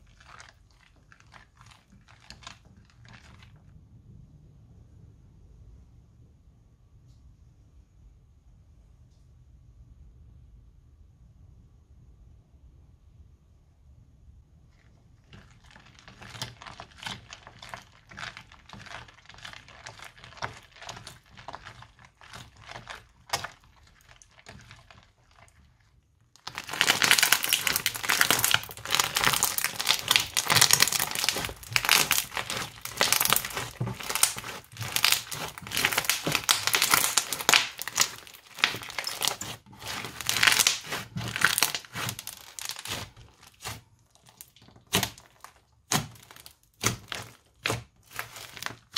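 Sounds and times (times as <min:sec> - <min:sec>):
hands kneading crackling slime: 0:00.0 - 0:03.5, 0:15.3 - 0:48.9
crunchy slime crackling: 0:00.0 - 0:03.6, 0:15.2 - 0:48.9
spatula working slime in bowl: 0:00.0 - 0:03.6, 0:14.7 - 0:48.9.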